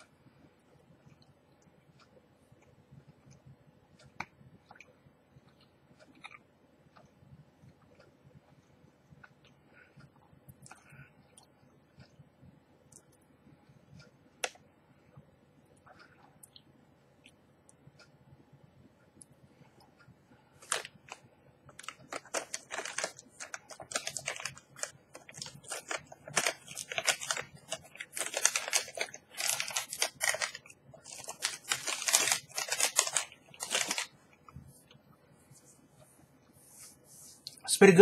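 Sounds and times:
plastic wrapper crinkling: 20.6s - 34.2s.

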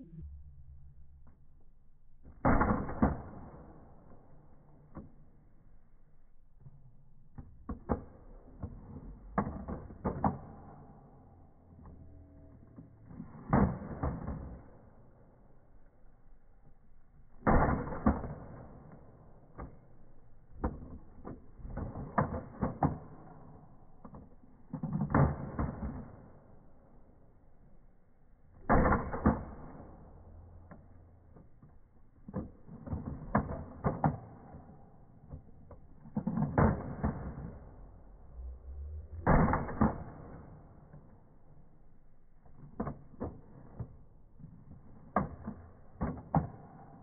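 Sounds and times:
toy blaster clacking and firing: 20.5s - 26.7s, 32.2s - 41.7s.

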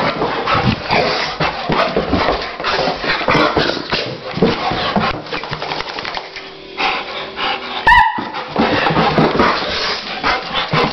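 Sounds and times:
dog scuffling and clicking: 0.0s - 6.4s
dog panting: 0.0s - 10.9s
dog yelp: 7.8s - 8.4s.

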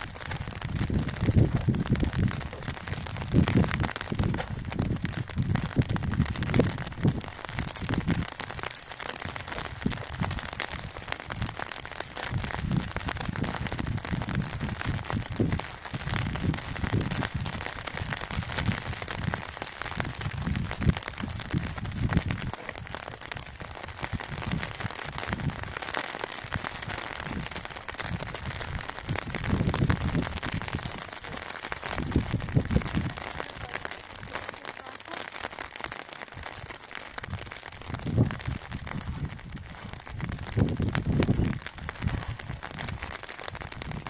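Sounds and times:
low rumbles: 0.0s - 25.8s, 37.2s - 44.0s
rain pattering: 0.0s - 44.0s.

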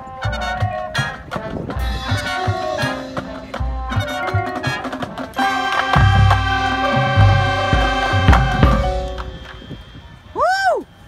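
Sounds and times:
wind instruments held chord: 0.0s - 10.3s
pitched percussion notes: 0.0s - 10.4s
low drum hits: 5.8s - 9.9s.

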